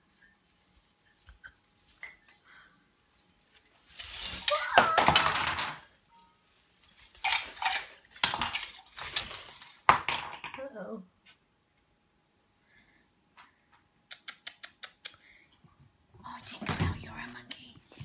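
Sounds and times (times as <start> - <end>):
branches and tinsel rustling: 0.0 - 9.9.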